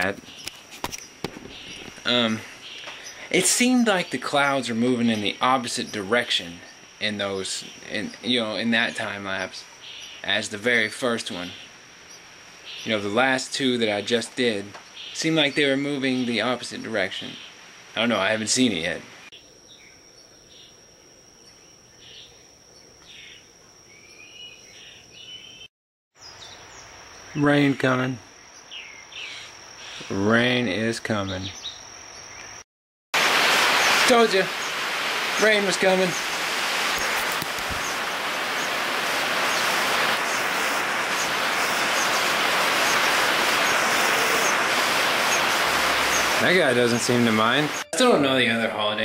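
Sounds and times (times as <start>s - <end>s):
bird chirps: 0.0s - 6.8s, 7.4s - 13.1s, 14.7s - 16.5s, 21.4s - 30.2s, 31.2s - 32.6s, 33.6s - 48.0s
steady rain falling: 0.0s - 19.3s, 33.2s - 48.1s
insects calling: 0.0s - 32.6s, 33.2s - 49.0s.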